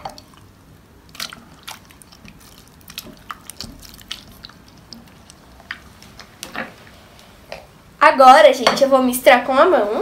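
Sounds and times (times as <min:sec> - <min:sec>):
slime squelching when stirred: 0:00.0 - 0:06.5.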